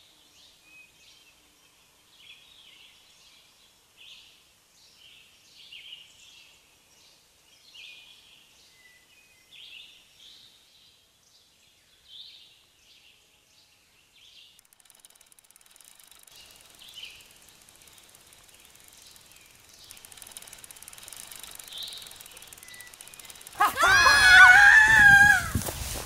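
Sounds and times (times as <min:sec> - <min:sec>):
faint bird chirps: 0:14.6 - 0:24.5
bicycle rolling on dirt track: 0:14.6 - 0:26.0
woman screaming: 0:23.6 - 0:25.6.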